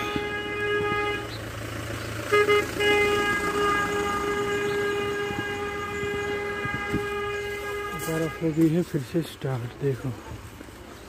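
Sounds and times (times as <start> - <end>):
vehicle horn blaring: 0.0 - 1.5, 2.2 - 8.9
vehicle running noise: 0.0 - 11.0.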